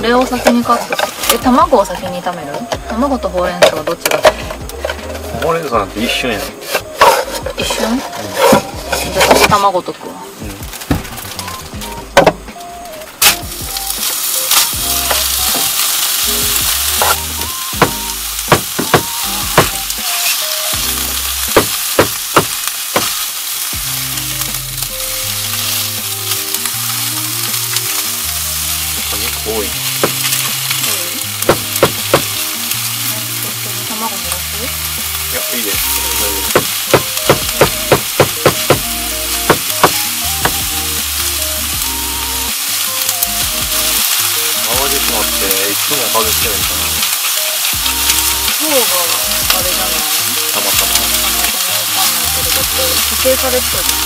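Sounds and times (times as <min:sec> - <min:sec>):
food sizzling in a frying pan: 0:00.0 - 0:54.0
utensils clicking against pan: 0:13.2 - 0:54.0.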